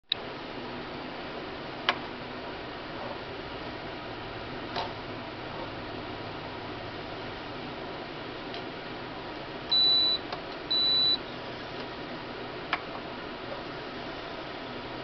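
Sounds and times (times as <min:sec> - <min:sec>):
short high electronic beeps: 0:09.7 - 0:11.2.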